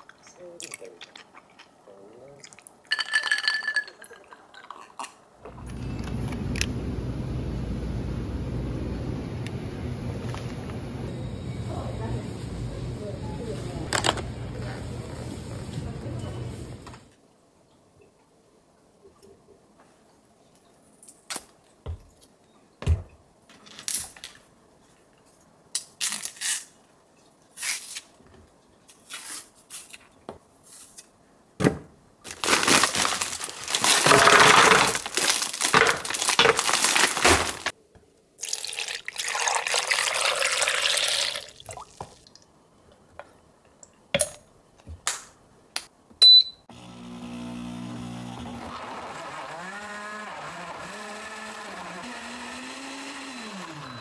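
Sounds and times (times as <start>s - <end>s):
small appliance motor humming: 46.7s - 54.0s.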